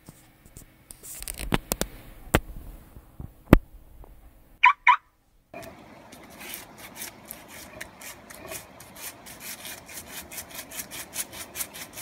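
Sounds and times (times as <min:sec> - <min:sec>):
dog claws scraping plastic pool: 0:05.6 - 0:12.0.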